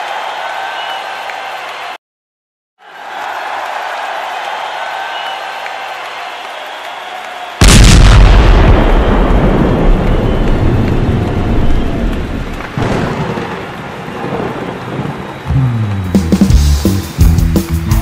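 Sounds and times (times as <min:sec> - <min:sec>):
explosion blast: 0:07.6 - 0:15.9.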